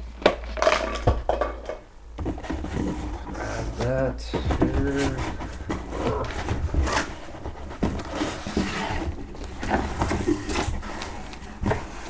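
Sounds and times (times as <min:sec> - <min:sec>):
cardboard scraping and sliding: 0:02.3 - 0:12.0.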